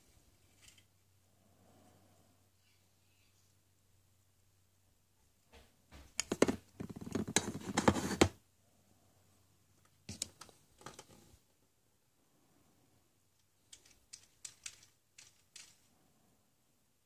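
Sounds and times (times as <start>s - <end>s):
plastic toys clattering: 13.6s - 15.9s.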